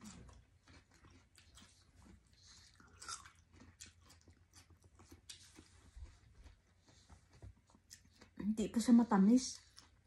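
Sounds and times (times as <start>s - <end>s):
crisp chewing crunches: 0.0s - 6.0s.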